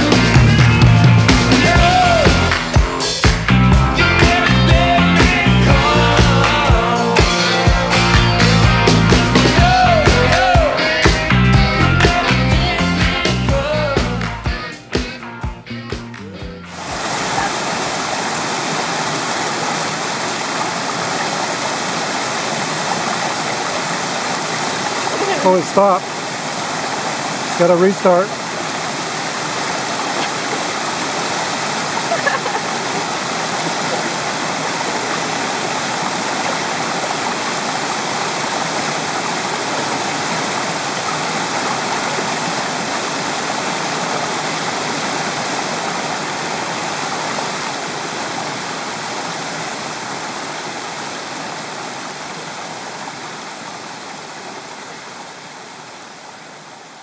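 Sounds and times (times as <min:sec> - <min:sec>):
stream running over rocks: 0:16.7 - 0:57.0.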